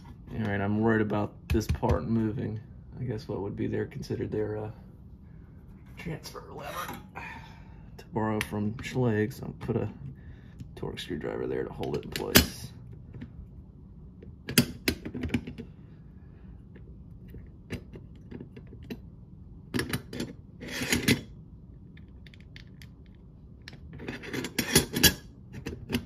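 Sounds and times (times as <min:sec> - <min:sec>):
metal lock parts clicking: 0:19.7 - 0:21.3, 0:22.0 - 0:26.0.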